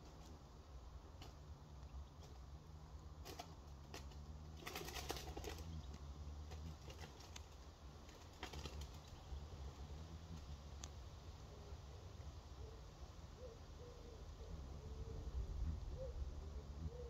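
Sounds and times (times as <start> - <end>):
moth wings humming: 0.0 - 12.3
faint clicks: 10.4 - 11.0.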